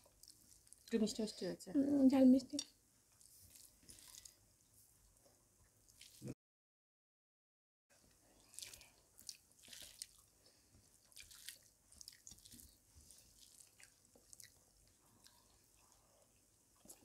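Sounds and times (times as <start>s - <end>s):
soft chewing mouth sounds: 0.0s - 1.0s, 3.1s - 6.4s, 8.0s - 17.0s
fingers mixing rice wet clicks: 8.4s - 10.3s, 11.0s - 16.0s.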